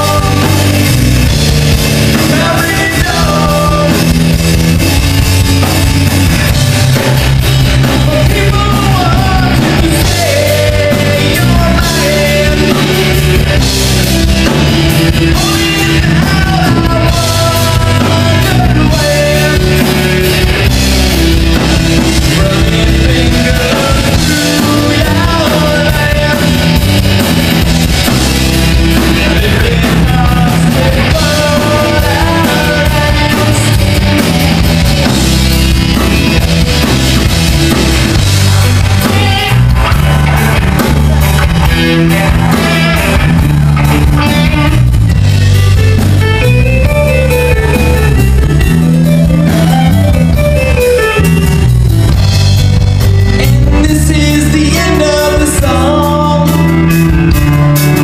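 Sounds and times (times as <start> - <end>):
lead singer singing: 0.0 - 4.5, 7.7 - 27.7, 28.7 - 35.2, 38.4 - 40.4, 53.4 - 58.0
live rock band playing: 0.0 - 58.0.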